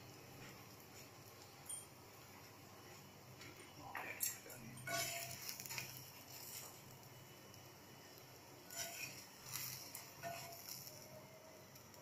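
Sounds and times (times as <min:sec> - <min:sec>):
faint steady hiss: 0:00.0 - 0:12.0
metal tongs scraping pan: 0:04.8 - 0:06.8, 0:08.7 - 0:11.0.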